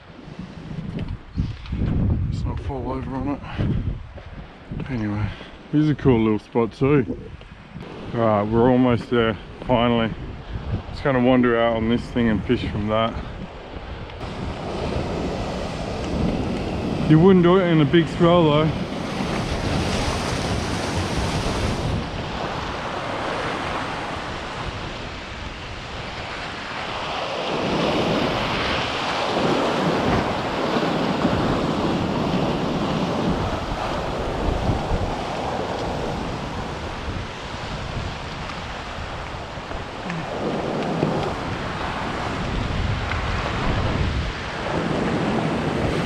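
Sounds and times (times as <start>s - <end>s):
wind buffeting microphone: 0.0s - 46.0s
waves washing through rocks: 14.2s - 46.0s.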